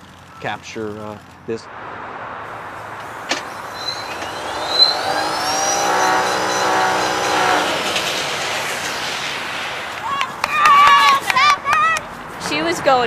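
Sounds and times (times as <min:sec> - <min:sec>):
motor whine revving: 0:02.6 - 0:10.5.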